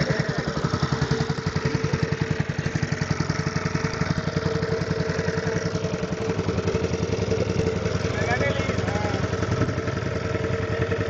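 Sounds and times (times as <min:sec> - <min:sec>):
small boat engine running: 0:00.0 - 0:11.0.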